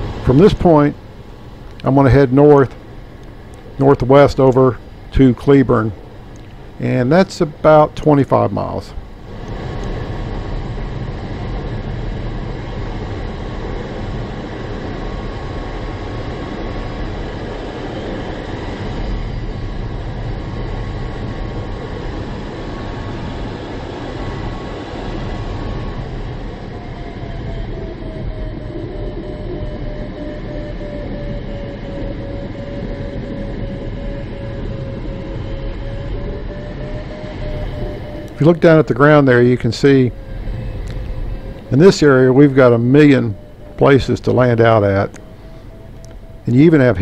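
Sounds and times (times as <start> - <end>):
thin steady tone: 0.0 - 26.8, 27.4 - 47.0
air rushing over glider: 0.0 - 47.0
faint sinking tone: 35.9 - 47.0.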